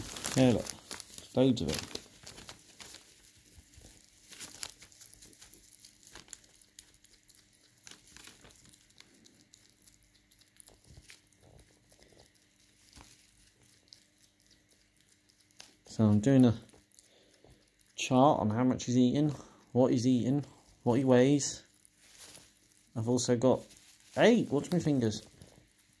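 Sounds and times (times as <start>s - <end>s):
newspaper crinkling: 0.0s - 14.5s, 20.1s - 26.0s.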